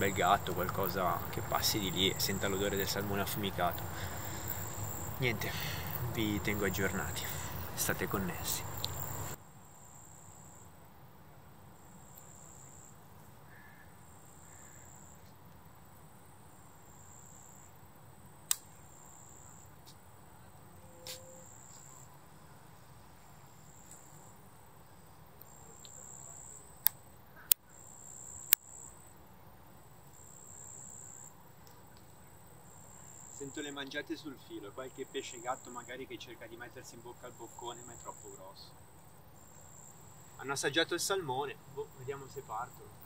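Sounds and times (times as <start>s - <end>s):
insect chirping: 0.0s - 10.9s, 11.7s - 43.0s
sharp clicks: 18.5s - 18.7s.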